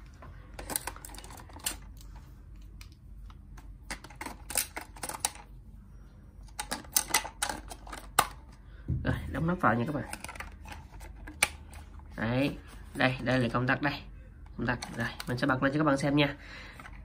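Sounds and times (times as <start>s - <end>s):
batteries clicking into plastic toy: 6.5s - 8.4s.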